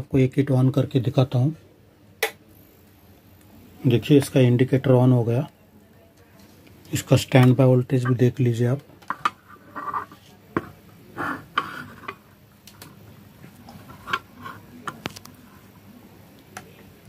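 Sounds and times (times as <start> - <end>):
soft handling noise: 5.5 - 17.0.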